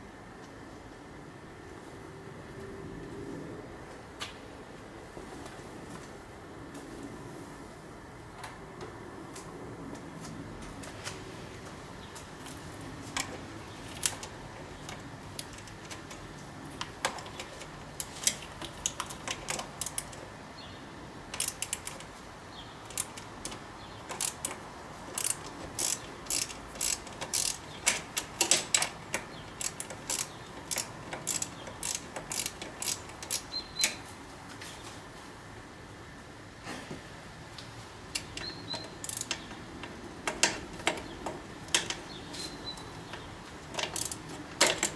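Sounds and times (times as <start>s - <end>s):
ratchet wrench clicking: 16.9s - 20.2s, 21.3s - 22.1s, 22.8s - 34.0s, 38.1s - 39.6s, 43.6s - 44.9s.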